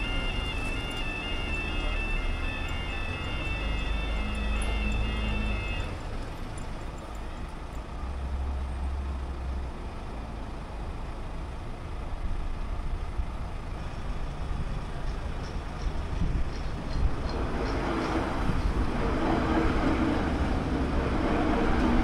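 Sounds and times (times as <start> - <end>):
level crossing alarm tones: 0.0 - 6.3
road vehicles idling: 0.0 - 22.0.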